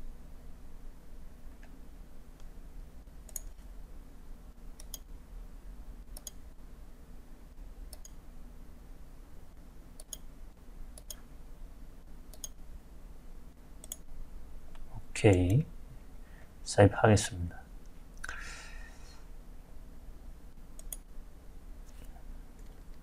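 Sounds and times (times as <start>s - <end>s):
faint low hum: 0.0s - 23.0s
computer mouse clicks: 3.2s - 3.6s, 4.8s - 5.1s, 6.1s - 6.4s, 7.9s - 8.2s, 10.0s - 10.3s, 11.0s - 11.3s, 12.3s - 12.6s, 13.8s - 14.1s, 20.8s - 21.1s.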